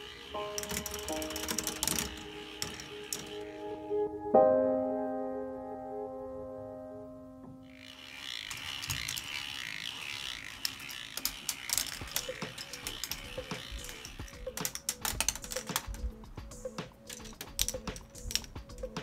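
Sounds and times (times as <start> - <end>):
plastic balls clicking on tracks: 0.0 - 3.7, 7.8 - 19.0
faint motor hum: 0.0 - 4.3, 7.5 - 16.8.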